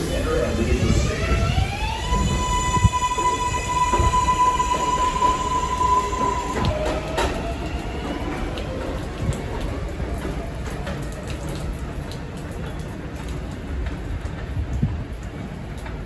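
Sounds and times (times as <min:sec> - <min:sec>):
train traction motors whining: 0:00.0 - 0:09.0
train wheels rumbling on track: 0:00.0 - 0:16.0.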